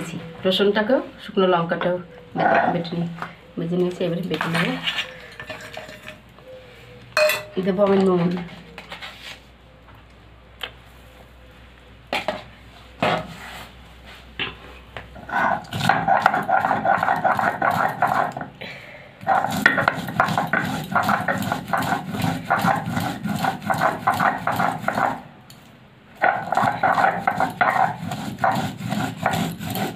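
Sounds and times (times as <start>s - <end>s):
stone roller crushing peanuts: 4.1s - 6.2s, 15.1s - 18.6s, 19.2s - 25.3s, 26.2s - 29.9s.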